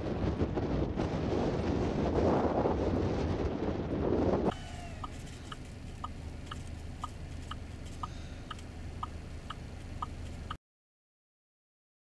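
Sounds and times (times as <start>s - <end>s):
idling engine hum: 0.0s - 10.6s
turn signal ticking: 4.5s - 10.6s.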